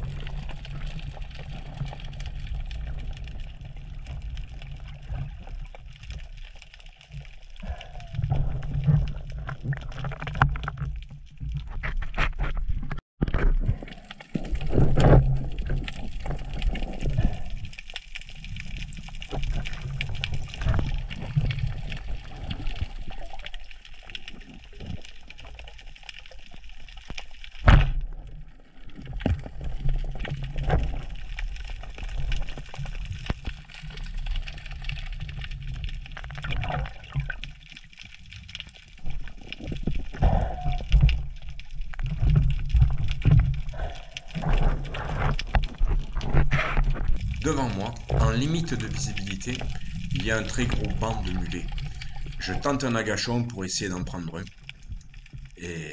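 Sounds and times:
underwater rumble: 0.0 - 55.9
water sloshing: 28.8 - 55.6.

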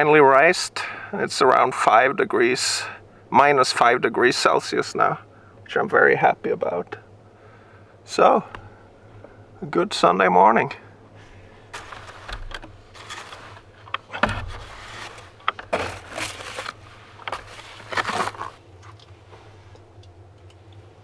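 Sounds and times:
brush sweeping snow: 11.7 - 13.8, 14.5 - 18.6.

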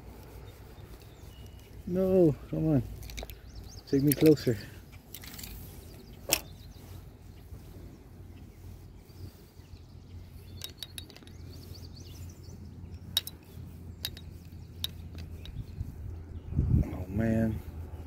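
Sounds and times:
wind rumbling on microphone: 0.0 - 18.0
sharp light clicks and clinks: 3.0 - 5.6, 10.4 - 11.7, 13.0 - 15.7.

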